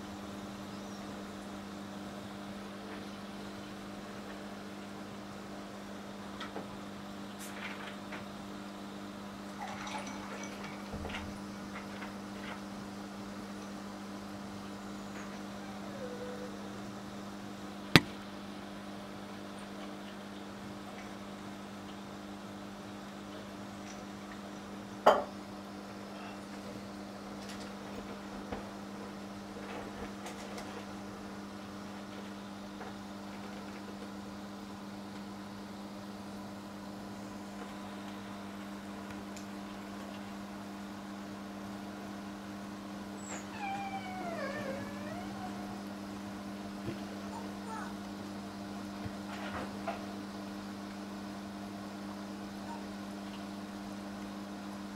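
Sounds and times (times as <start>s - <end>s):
aquarium filter humming: 12.7s - 24.3s
filter pump hum: 30.8s - 54.9s.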